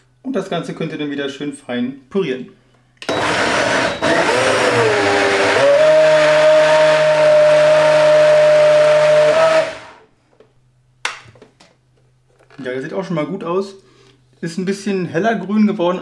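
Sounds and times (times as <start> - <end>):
blender motor running: 3.1 - 10.0.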